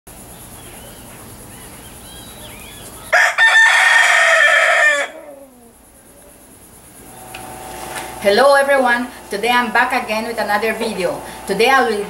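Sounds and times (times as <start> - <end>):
small birds chirping: 0.1 - 3.2
rooster crowing: 2.3 - 6.0.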